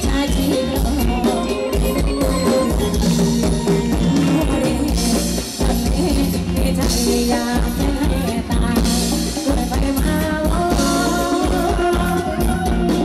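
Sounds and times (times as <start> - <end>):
drum beat: 0.0 - 13.0
guitar: 0.0 - 13.0
person singing: 0.0 - 13.0.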